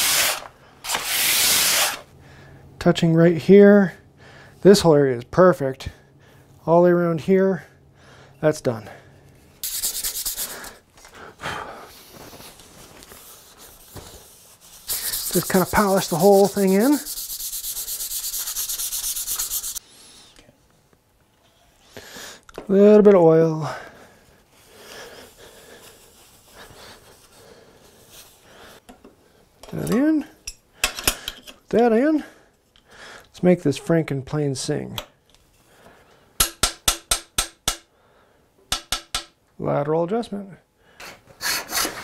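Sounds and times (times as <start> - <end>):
sandpaper rubbing on metal: 0.0 - 2.0, 9.6 - 10.8, 13.2 - 19.8.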